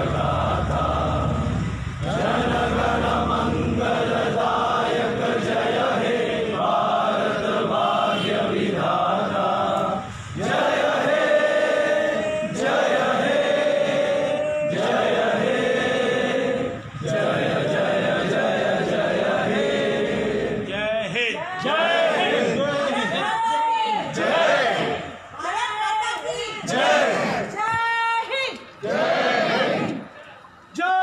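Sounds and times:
crowd singing unaccompanied: 0.0 - 23.3, 23.9 - 25.2, 26.6 - 27.7, 28.8 - 30.1.

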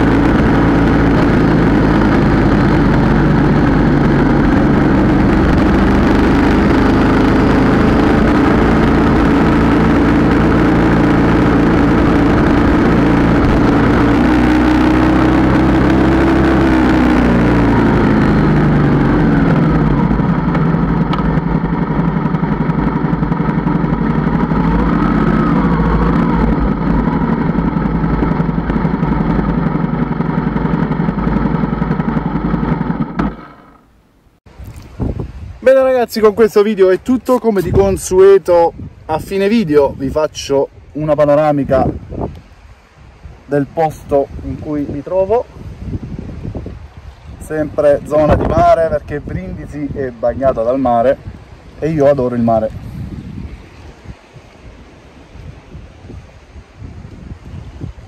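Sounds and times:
motorcycle engine running: 0.0 - 35.4, 37.2 - 58.0.

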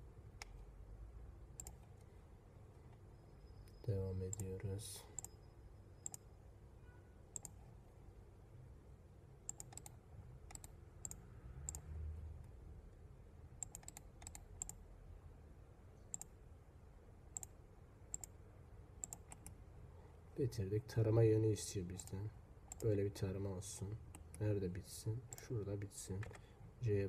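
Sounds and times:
faint low hum: 0.0 - 27.0
computer mouse clicking: 1.6 - 2.1, 5.2 - 5.4, 6.0 - 6.2, 7.4 - 7.6, 9.5 - 11.9, 13.6 - 14.8, 16.1 - 16.4, 17.4 - 18.4, 19.0 - 19.6, 22.7 - 23.0, 26.2 - 26.4.

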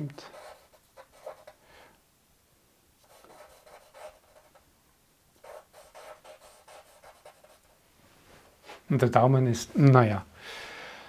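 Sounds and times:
charcoal scratching on paper: 0.2 - 1.6, 3.0 - 4.6, 5.4 - 7.8.

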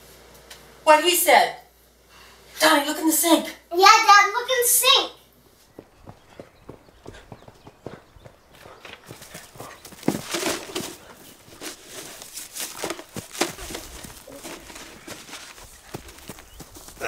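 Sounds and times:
footsteps running on dry leaves: 5.7 - 17.0.

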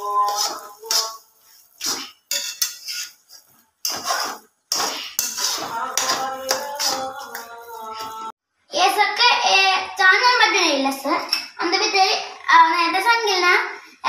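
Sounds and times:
metal spatula scraping pot: 0.0 - 8.2.

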